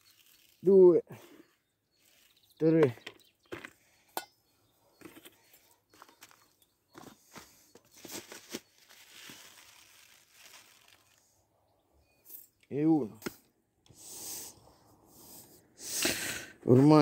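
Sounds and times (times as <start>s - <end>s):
paper packet crinkling: 0.0s - 0.6s, 7.9s - 11.3s
seeds pouring into metal bowl: 0.0s - 0.6s.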